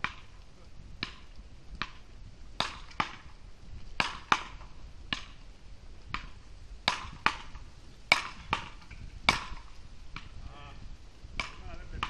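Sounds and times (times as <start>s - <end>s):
paddles striking ball: 6.1s - 10.4s, 11.4s - 12.0s.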